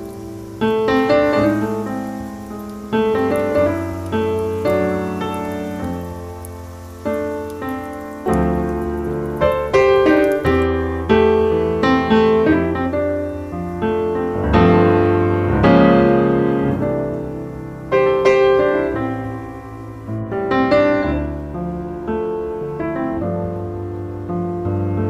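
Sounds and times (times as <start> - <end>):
solo piano music: 0.0 - 25.0.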